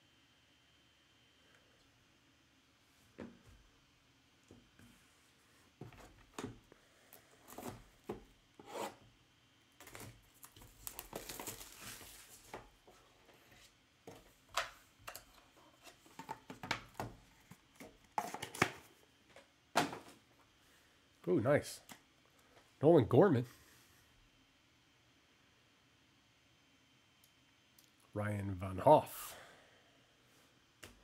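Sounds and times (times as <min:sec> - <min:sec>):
shrink-wrap tearing: 0:09.8 - 0:12.4.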